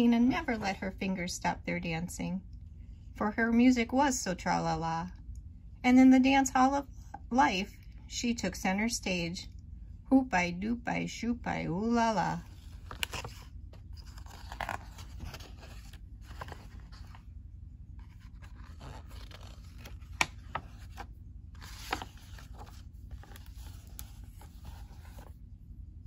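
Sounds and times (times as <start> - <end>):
book pages flipping: 12.4 - 17.2, 18.0 - 25.4.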